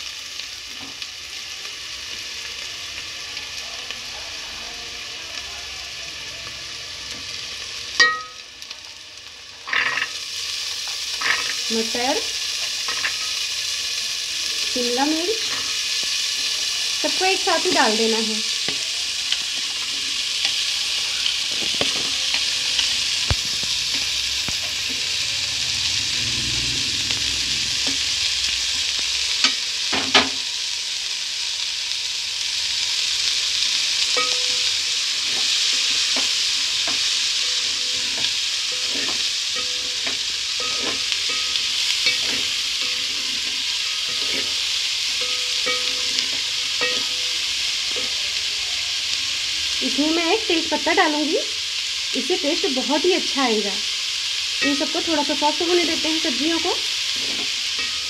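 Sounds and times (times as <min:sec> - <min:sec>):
vegetables sizzling in butter: 0:00.0 - 0:58.0
wooden spatula scraping a pot: 0:35.2 - 0:47.2, 0:57.1 - 0:58.0.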